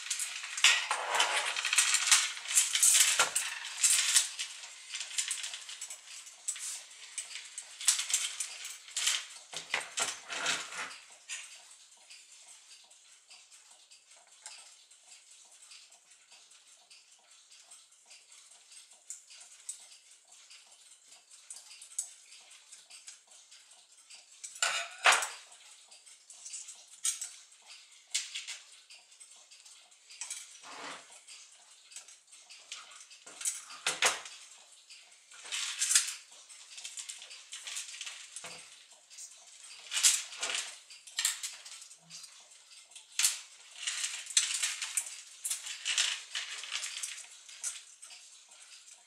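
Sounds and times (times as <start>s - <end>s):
clock parts clinking: 0.0s - 13.5s, 24.2s - 49.0s.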